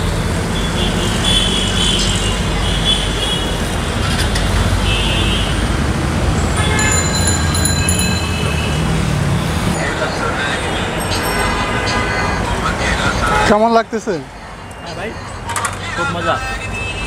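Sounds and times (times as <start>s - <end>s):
traffic rumble: 0.0s - 17.0s
car horns tooting: 0.5s - 4.0s, 4.7s - 5.7s, 6.4s - 13.8s, 15.5s - 17.0s.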